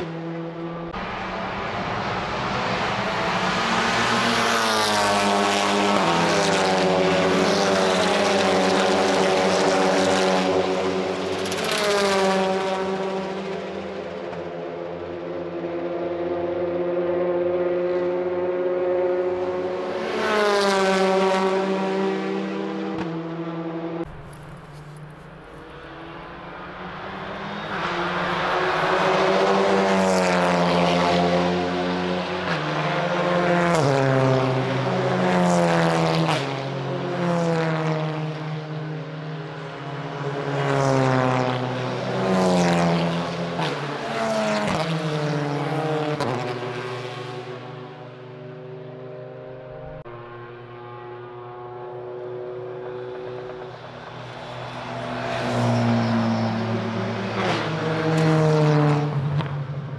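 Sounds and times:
race cars passing at full throttle: 0.0 - 59.9.

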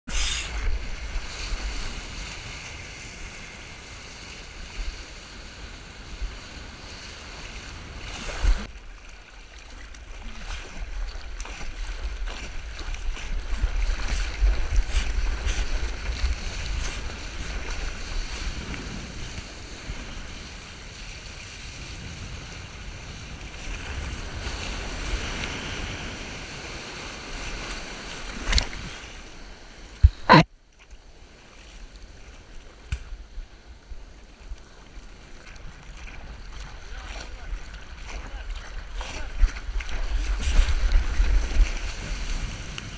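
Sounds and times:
water rushing and spraying: 0.1 - 5.4
wind rumbling on microphone: 10.0 - 30.3, 32.2 - 42.9.

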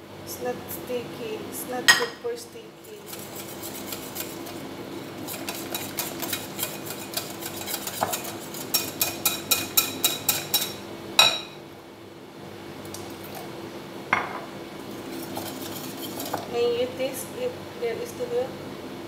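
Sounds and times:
spoon stirring batter in glass bowl: 2.9 - 10.8, 14.9 - 16.5.

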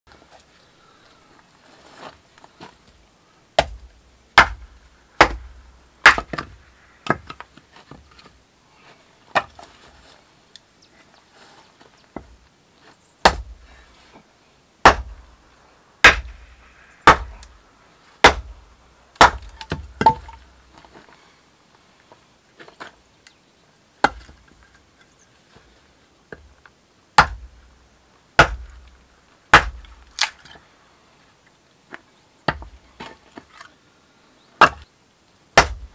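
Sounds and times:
axe chopping wood: 3.6 - 3.8, 4.4 - 7.4, 9.3 - 9.6, 13.2 - 13.6, 14.8 - 15.2, 16.0 - 17.6, 18.2 - 18.5, 19.2 - 20.4, 24.0 - 24.4, 27.2 - 27.6, 28.4 - 28.8, 29.5 - 30.4, 32.5 - 33.1, 34.6 - 34.8, 35.6 - 35.9.

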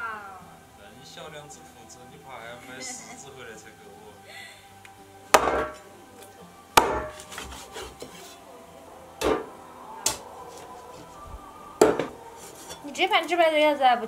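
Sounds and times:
faint background music: 0.0 - 14.0
sharp blows on wood: 6.8 - 8.0.

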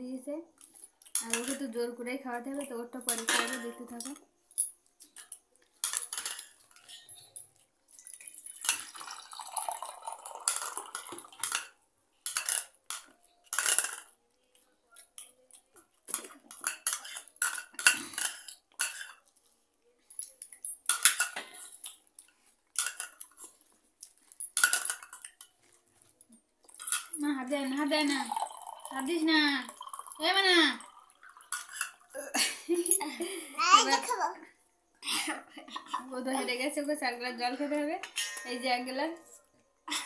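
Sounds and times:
spoons clinking against bowls: 0.7 - 1.7, 2.6 - 14.2, 14.9 - 19.4, 20.2 - 23.6, 24.3 - 25.6, 26.7 - 27.2, 30.8 - 32.1, 37.6 - 40.0.

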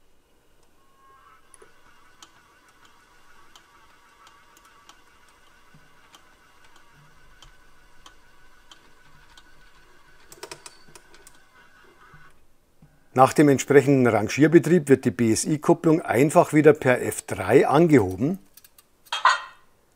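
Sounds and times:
model locomotive high hum: 0.0 - 12.4
faint regular ticking: 18.0 - 18.9.

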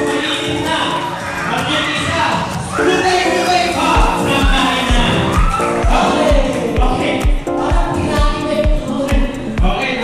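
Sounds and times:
steady kick-drum beat: 0.0 - 10.0
person singing: 3.8 - 10.0.

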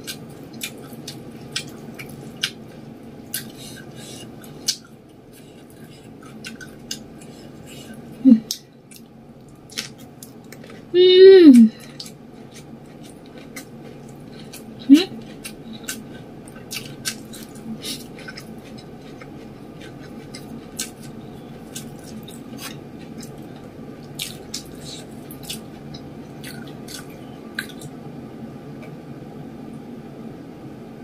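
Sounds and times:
steady low hum: 0.0 - 31.0
wet mouth sounds of eating: 11.5 - 27.9.

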